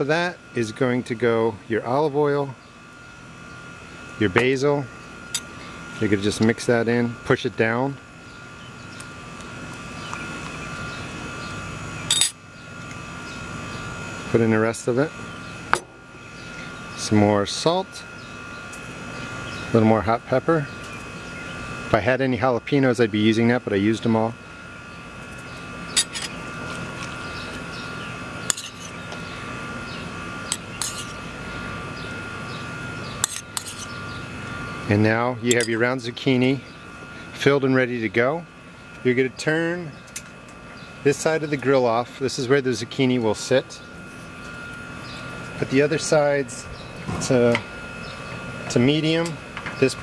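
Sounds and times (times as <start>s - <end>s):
mechanical hum: 0.0s - 50.0s
metal spoon clinking dish: 26.0s - 26.3s, 28.5s - 28.9s, 30.5s - 31.2s, 33.2s - 33.9s.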